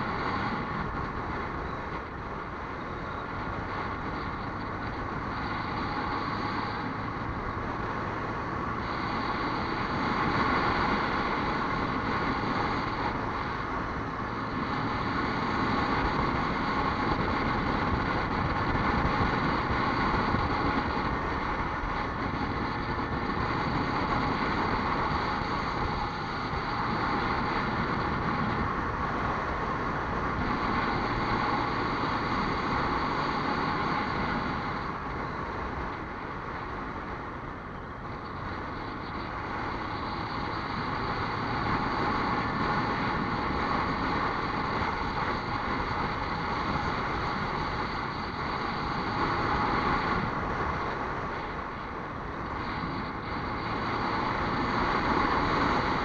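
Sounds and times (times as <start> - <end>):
vehicle driving on road: 0.0 - 56.0.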